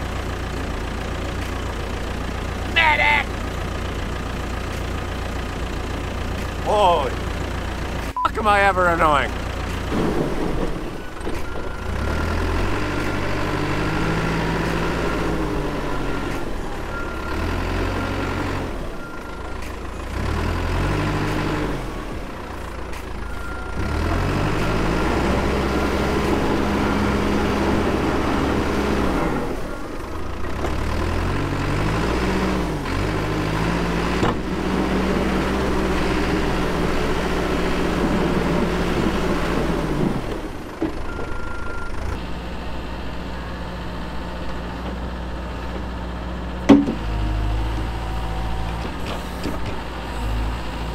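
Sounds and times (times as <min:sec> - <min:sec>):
diesel engine working under load: 0:00.0 - 0:50.9.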